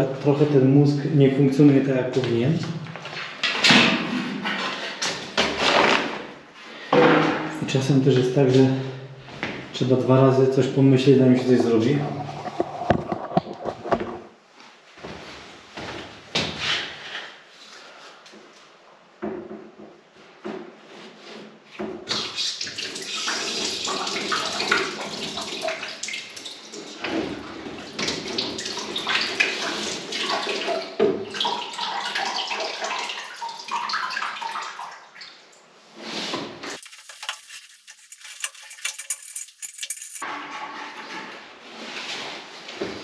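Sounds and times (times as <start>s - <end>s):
water running through hose: 36.7s - 40.2s.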